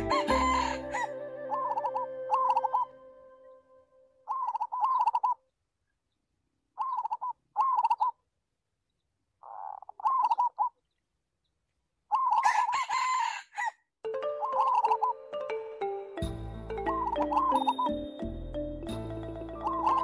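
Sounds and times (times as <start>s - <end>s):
rooster crowing: 0.0s - 2.8s, 12.4s - 13.8s.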